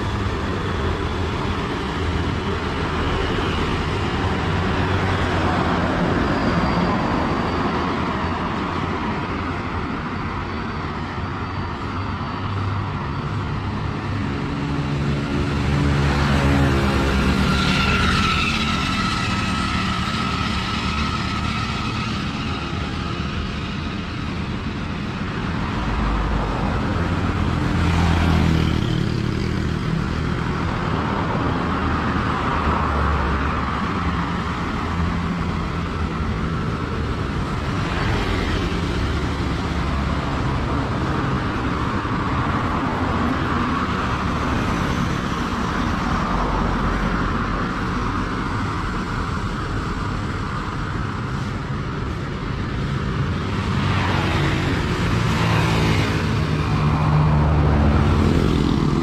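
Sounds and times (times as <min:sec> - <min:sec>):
cars passing: 0:00.0 - 0:59.0
motorbikes passing: 0:00.0 - 0:59.0.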